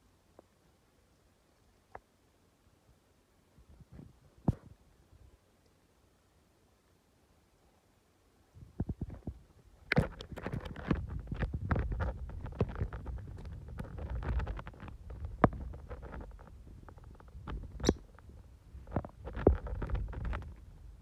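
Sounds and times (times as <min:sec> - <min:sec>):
claws and beak scratching shell: 0:09.9 - 0:20.6
bird chirp: 0:17.7 - 0:18.1.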